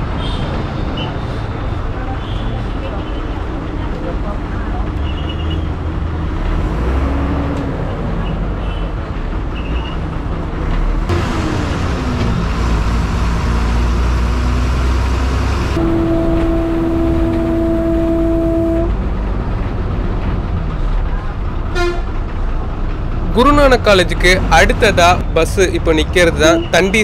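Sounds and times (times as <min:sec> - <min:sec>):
road noise: 0:00.0 - 0:27.0
bus engine running: 0:05.6 - 0:25.8
vehicle horn blast: 0:15.7 - 0:19.0, 0:21.8 - 0:22.0.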